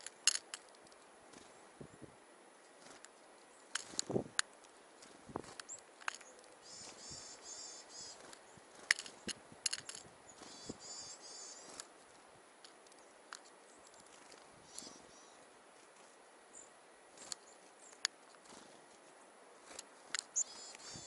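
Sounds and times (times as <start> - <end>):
songbirds calling high notes: 5.4 - 11.9, 12.8 - 15.5, 19.2 - 21.0
birds tapping on metal tin: 8.8 - 10.0.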